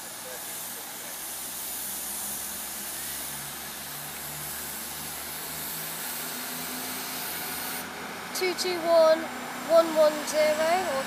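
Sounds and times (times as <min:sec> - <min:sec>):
hiss: 0:00.0 - 0:07.9
diesel train engine drone: 0:00.0 - 0:11.0.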